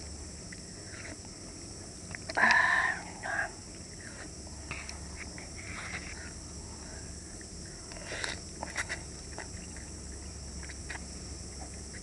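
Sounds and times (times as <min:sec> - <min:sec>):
faint steady hiss: 0:00.0 - 0:12.0
person chewing: 0:07.4 - 0:12.0.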